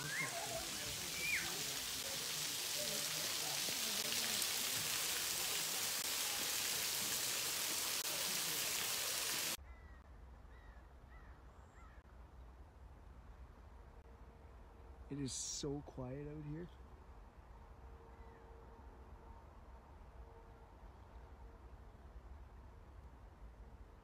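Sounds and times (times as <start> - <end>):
waterfall rushing hiss: 0.0 - 9.6.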